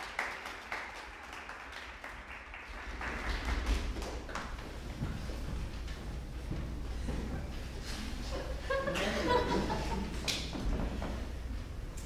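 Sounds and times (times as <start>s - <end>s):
audience applause: 0.0s - 4.3s.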